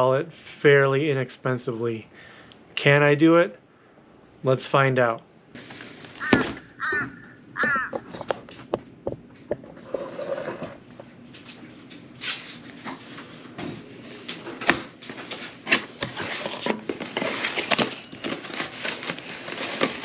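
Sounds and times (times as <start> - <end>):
cardboard box rustling and scraping: 9.8 - 10.8, 15.1 - 20.0.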